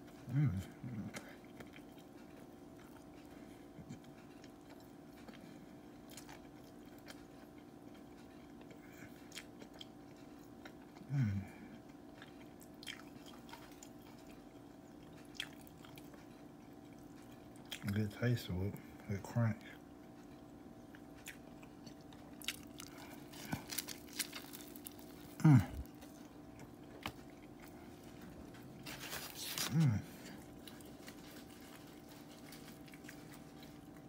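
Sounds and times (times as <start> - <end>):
chewing crispy sandwich: 0.0 - 19.0, 19.8 - 34.0
steady low hum: 0.0 - 34.0
person humming mm: 0.3 - 1.2, 25.4 - 25.9.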